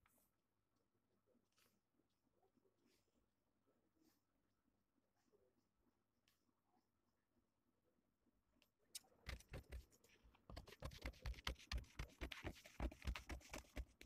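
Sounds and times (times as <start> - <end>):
scissors snipping paper: 10.5 - 14.0.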